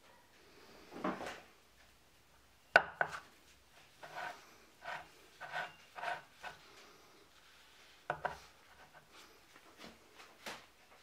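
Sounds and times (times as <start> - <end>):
light knocks and scrapes: 3.0 - 6.9, 8.0 - 10.0.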